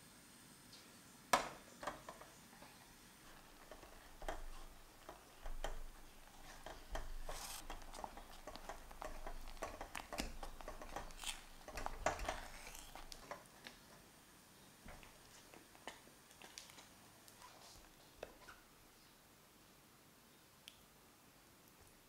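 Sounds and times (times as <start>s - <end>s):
spatula scraping a saucepan: 3.2s - 13.4s.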